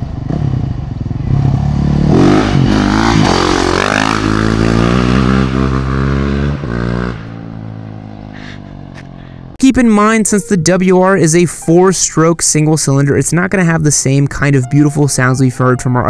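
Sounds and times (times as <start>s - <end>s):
motorcycle engine revving: 0.0s - 9.6s.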